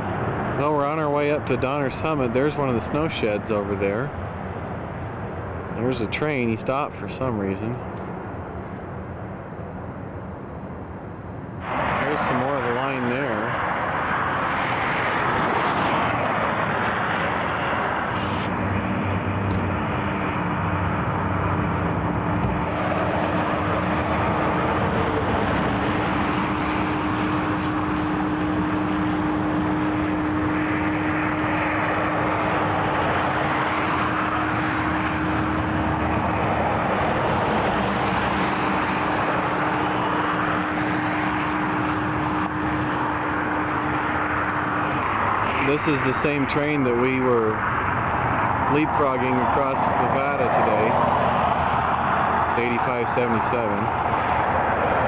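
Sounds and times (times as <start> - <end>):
engine hum: 0.0 - 55.0
vehicle rushing past: 11.6 - 55.0.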